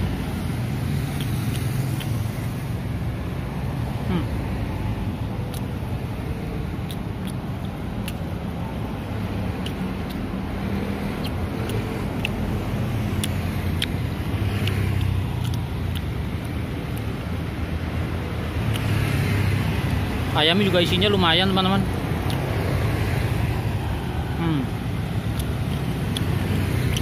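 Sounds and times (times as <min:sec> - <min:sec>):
sharp clicks: 0:01.0 - 0:02.3, 0:09.5 - 0:17.3, 0:25.0 - 0:27.0.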